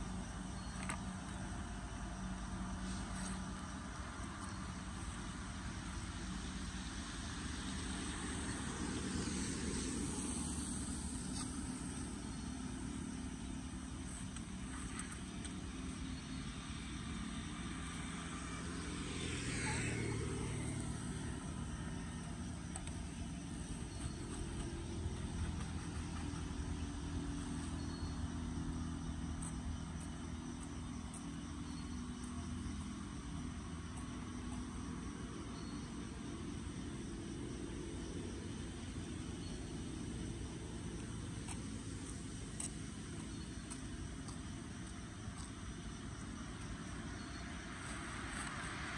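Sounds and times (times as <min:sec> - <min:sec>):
traffic on a wet road: 0:01.1 - 0:48.9
vehicle passing: 0:16.4 - 0:28.7.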